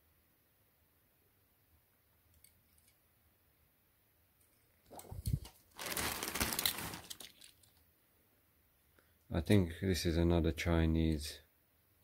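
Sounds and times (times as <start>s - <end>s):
plastic bag crinkling: 4.9s - 7.8s.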